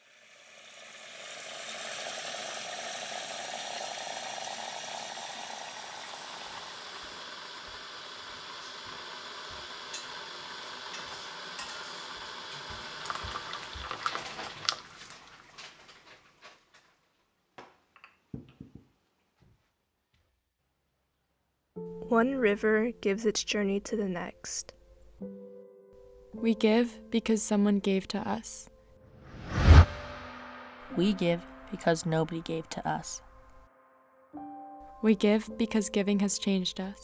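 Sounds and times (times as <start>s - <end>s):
kettle water hissing: 0.0s - 15.9s.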